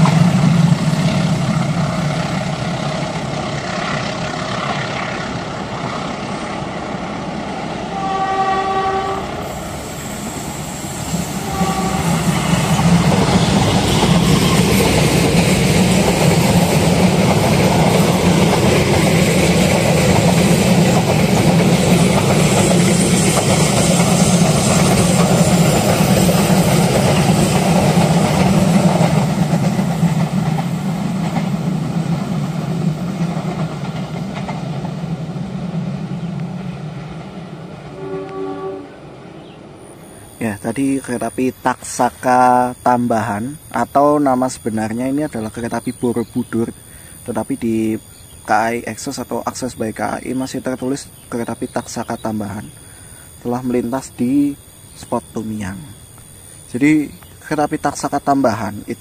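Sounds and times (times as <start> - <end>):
train wheels rumbling and clattering: 0.0 - 8.1, 9.3 - 38.0
locomotive horn: 7.8 - 9.6, 11.4 - 12.4, 37.8 - 39.1.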